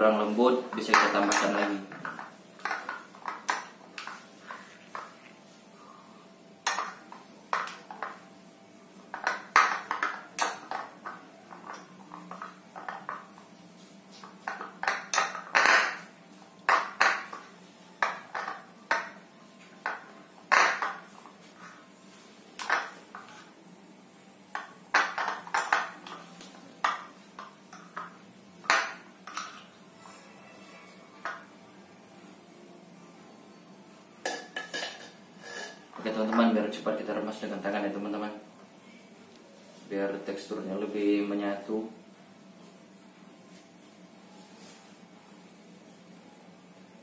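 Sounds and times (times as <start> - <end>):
metal spoon scraping a plate: 34.5 - 35.9.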